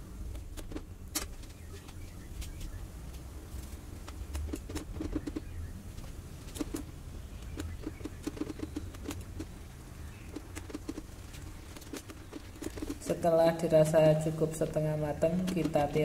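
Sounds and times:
utensil stirring with pops and clicks: 0:06.5 - 0:09.6, 0:10.2 - 0:13.2.

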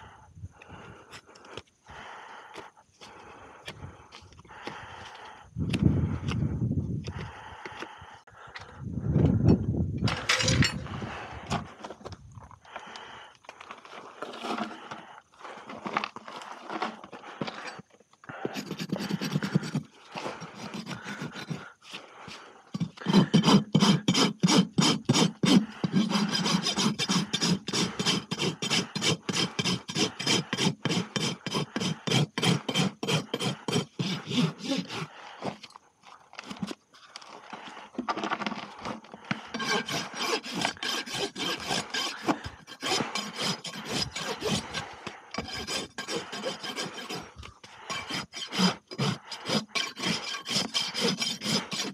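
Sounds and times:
hoof rasp scraping: 0:13.6 - 0:51.9.

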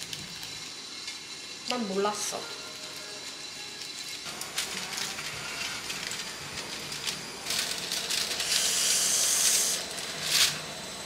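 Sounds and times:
foil crinkling: 0:02.7 - 0:10.6.

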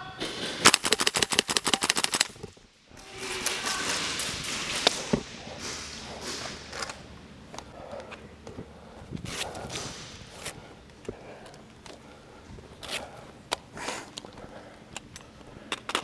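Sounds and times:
airsoft rifle full-auto burst: 0:00.6 - 0:02.4.

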